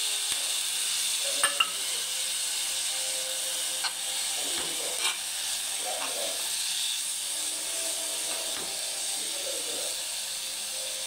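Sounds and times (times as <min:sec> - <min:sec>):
food sizzling in a pan: 0:00.0 - 0:11.0
metal spoon clicking on pan: 0:01.4 - 0:01.8.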